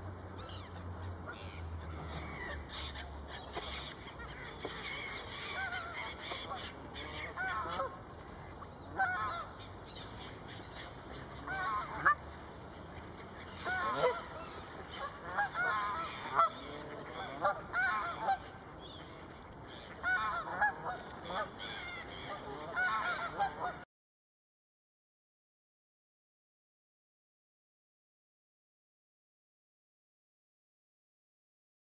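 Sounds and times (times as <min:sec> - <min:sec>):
geese honking: 0:00.4 - 0:23.8.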